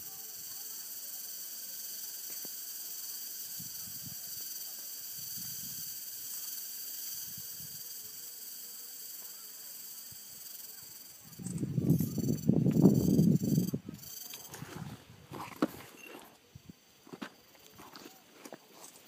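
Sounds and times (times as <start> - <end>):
high-pitched insect chorus: 0.0 - 19.0.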